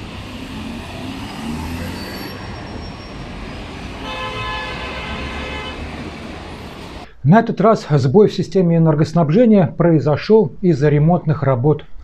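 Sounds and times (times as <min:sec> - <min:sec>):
road traffic: 0:00.0 - 0:07.1.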